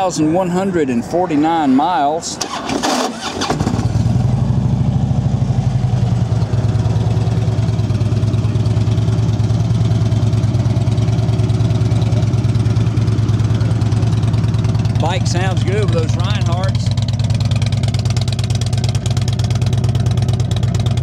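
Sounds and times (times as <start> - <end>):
motorcycle engine idling: 3.4 - 21.0.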